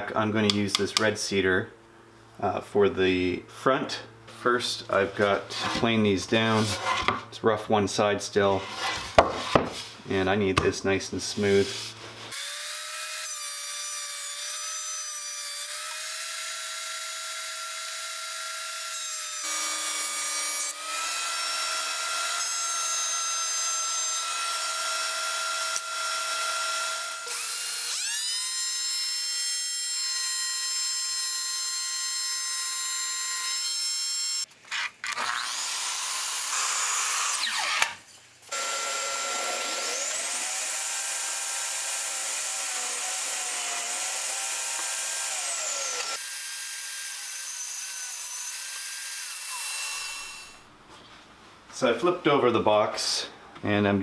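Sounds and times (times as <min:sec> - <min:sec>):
table saw ripping board: 0:08.7 - 0:09.9, 0:34.7 - 0:38.1
thickness planer whine: 0:38.5 - 0:46.3.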